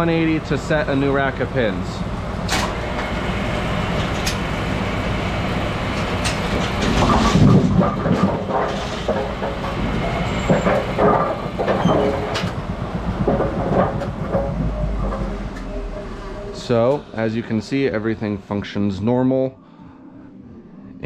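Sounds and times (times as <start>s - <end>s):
machine drive drone: 0.0s - 21.0s
mechanism rattling and clanking: 1.9s - 17.8s
sharp knocks: 7.0s - 17.2s.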